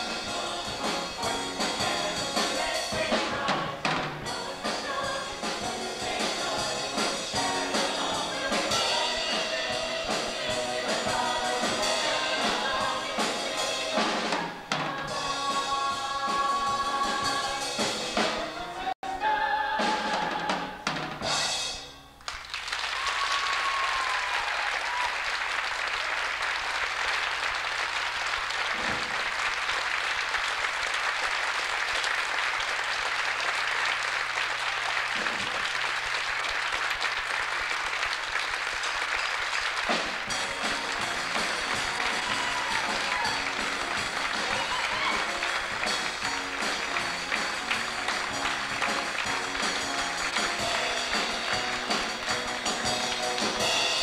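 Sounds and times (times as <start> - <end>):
band and choir music: 0.0 - 22.0, 39.8 - 54.0
audience applauding: 22.2 - 54.0.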